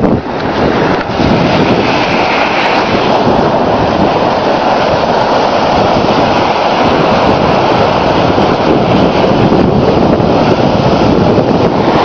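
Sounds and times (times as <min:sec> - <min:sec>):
surf: 0:00.0 - 0:12.0
wind buffeting microphone: 0:00.0 - 0:12.0.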